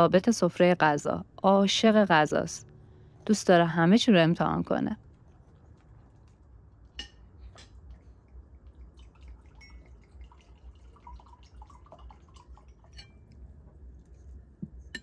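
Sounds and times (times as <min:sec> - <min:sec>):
tea pouring into a mug: 0:07.6 - 0:14.8.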